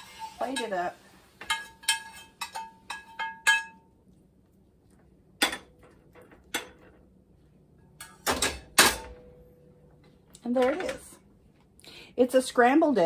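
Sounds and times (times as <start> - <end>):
metal spoon clinking on skillet: 0.0 - 4.0.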